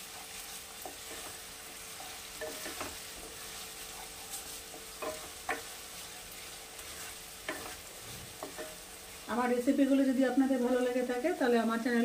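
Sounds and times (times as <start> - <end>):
onions sizzling in hot oil: 0.0 - 12.0
wooden spatula scraping pan: 0.1 - 9.6.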